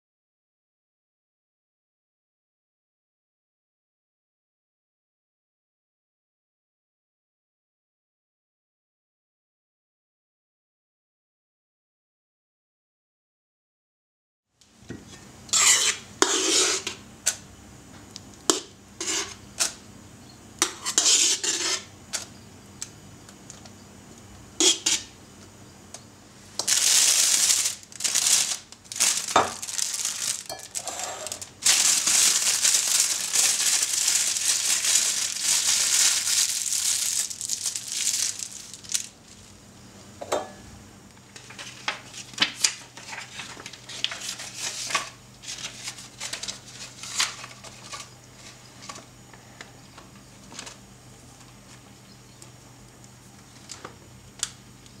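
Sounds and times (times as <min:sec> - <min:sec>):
cream scraped from metal bowl: 0:15.5 - 0:17.0, 0:19.0 - 0:19.4, 0:20.6 - 0:21.9
plastic bag crinkling: 0:26.4 - 0:39.6, 0:43.0 - 0:48.6.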